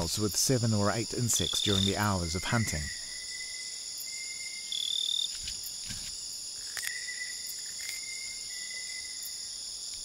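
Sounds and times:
high insect chirp: 0.0 - 10.0
insect trills: 0.0 - 10.0.

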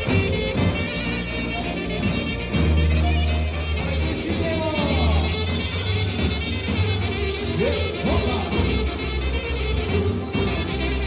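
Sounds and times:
live band playing folk dance music: 0.0 - 11.0.

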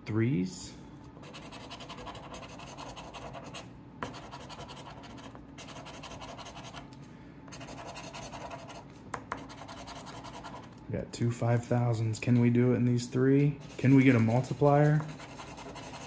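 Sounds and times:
coin scratching paper ticket: 1.2 - 6.8, 7.5 - 10.7, 13.6 - 16.0.

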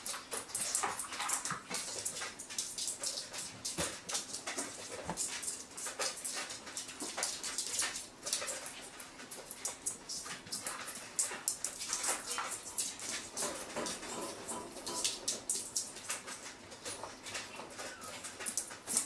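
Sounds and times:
puppy whimpering: 17.7 - 18.3.

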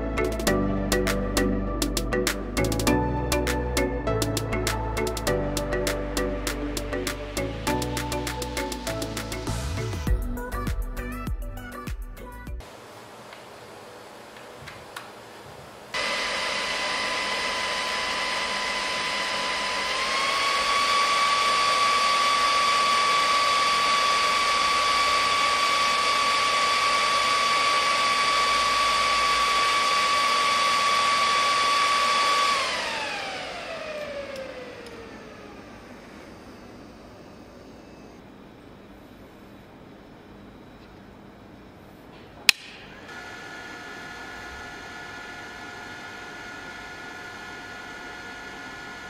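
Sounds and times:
charger cooling fan whining: 12.6 - 49.0.

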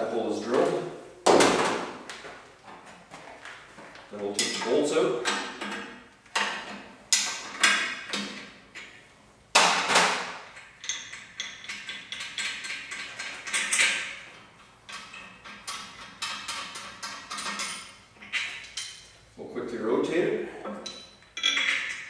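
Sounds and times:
wrench and bolts clanking: 10.5 - 19.1, 20.8 - 22.0.

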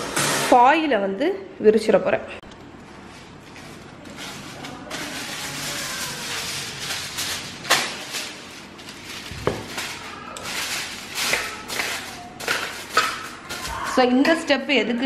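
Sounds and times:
aluminium foil crinkling: 2.9 - 14.2.

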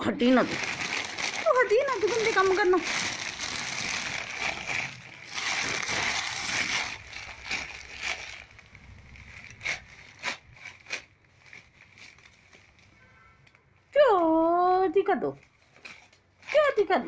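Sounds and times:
newspaper rustling and crinkling: 0.0 - 13.0.

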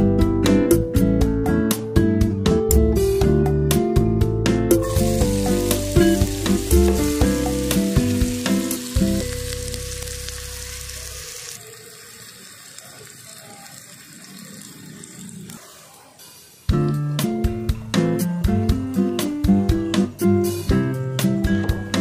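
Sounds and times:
background music with bass line: 0.0 - 10.4, 16.7 - 22.0
onions sizzling in oil: 4.8 - 17.5.

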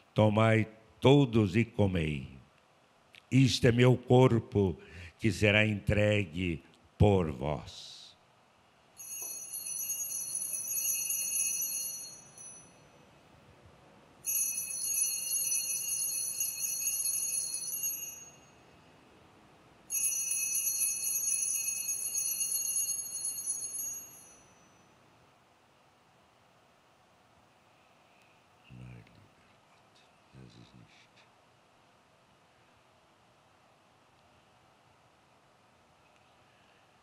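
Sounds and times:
altar bells jingling: 9.0 - 12.8, 19.9 - 24.6.

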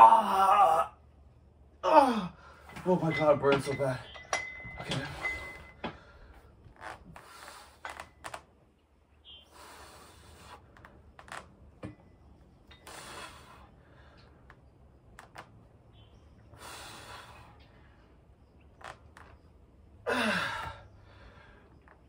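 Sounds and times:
man exhaling forcefully: 20.1 - 21.3.

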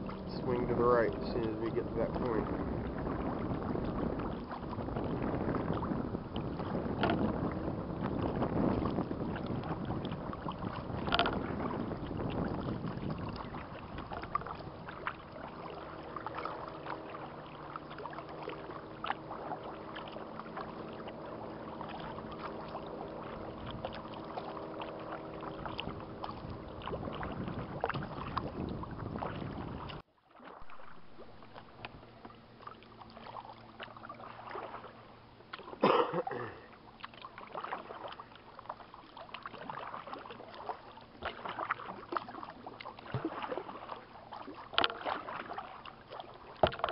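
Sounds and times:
wind on microphone: 0.0 - 30.0
paddle splashing in water: 0.0 - 46.9
water lapping at hull: 0.0 - 46.9.

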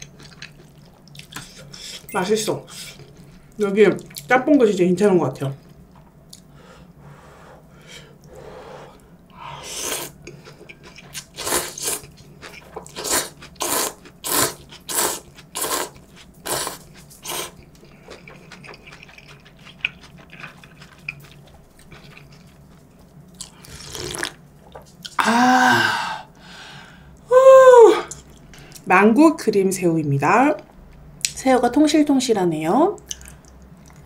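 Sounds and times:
quiet eating sounds: 0.0 - 4.6, 5.4 - 25.4, 28.0 - 28.9, 33.0 - 34.0
noodles slurped: 10.9 - 22.5
person humming: 25.2 - 26.2.

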